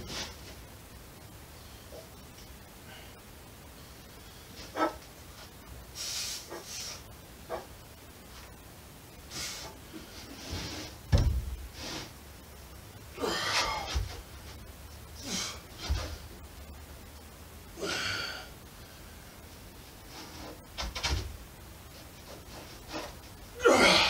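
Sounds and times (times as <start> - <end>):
dull thumps: 11.1 - 11.7.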